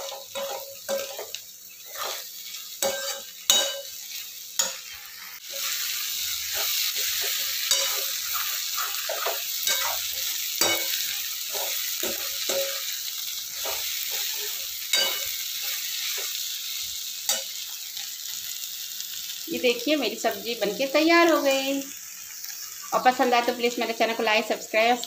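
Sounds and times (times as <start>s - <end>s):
spatula scraping a metal pan: 0.0s - 12.9s
vegetables sizzling in a pan: 0.0s - 25.0s.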